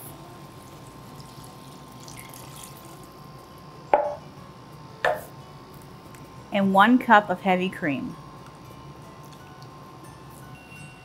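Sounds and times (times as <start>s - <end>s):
liquid pouring into pot: 0.5s - 3.2s.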